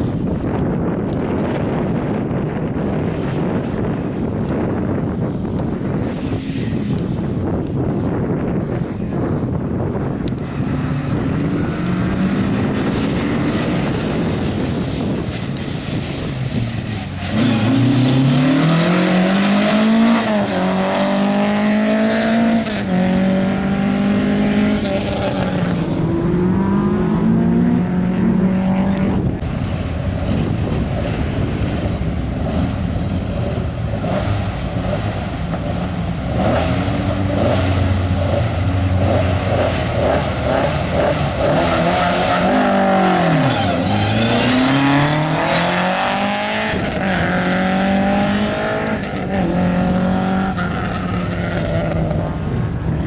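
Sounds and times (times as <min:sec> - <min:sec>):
rally car engine revving: 0:10.4 - 0:29.5, 0:30.2 - 0:52.8.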